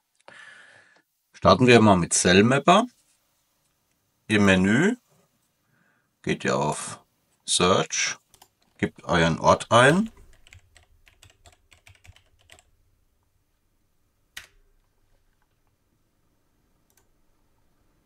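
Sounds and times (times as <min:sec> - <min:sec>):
keyboard typing: 0:08.3 - 0:08.8, 0:09.8 - 0:12.7.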